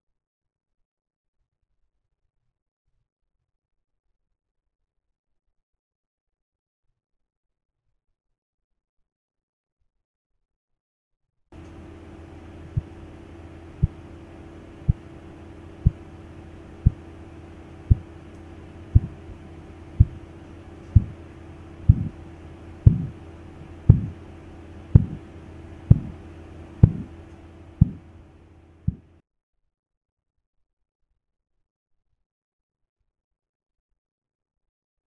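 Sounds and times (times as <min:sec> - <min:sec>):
heartbeat thumps through stethoscope: 0:11.6 - 0:29.2
steady low hum: 0:11.6 - 0:29.2.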